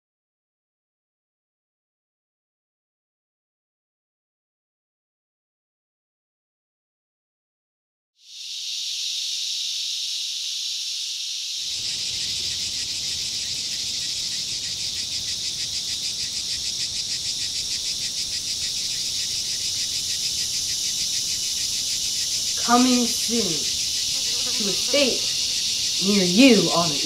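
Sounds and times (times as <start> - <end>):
cicadas buzzing: 8.2 - 27.0.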